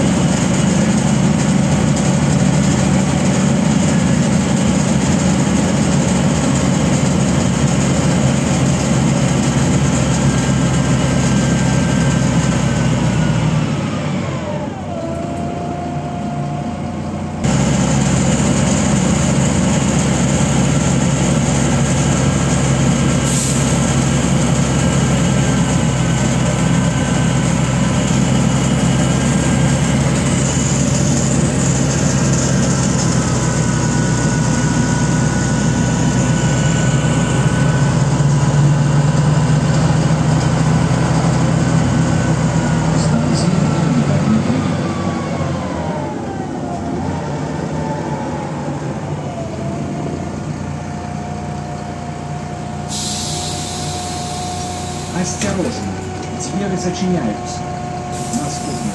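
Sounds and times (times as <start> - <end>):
bus engine hum and whine: 0.0 - 58.9
short hiss: 52.9 - 55.1.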